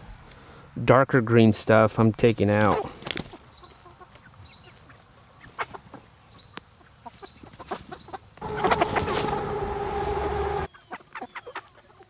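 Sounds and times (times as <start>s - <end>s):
hens clucking: 6.8s - 11.7s
steady held tone: 8.4s - 10.7s.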